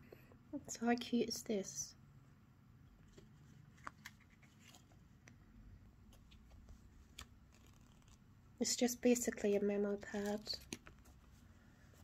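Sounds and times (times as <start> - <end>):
memo pad pages clicking: 6.1 - 8.2.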